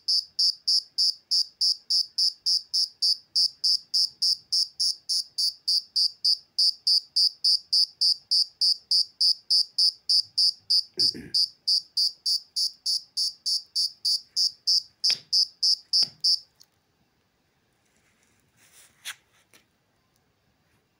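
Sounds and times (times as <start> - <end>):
cricket chirping: 0.0 - 16.5
faint rustle: 17.7 - 19.7.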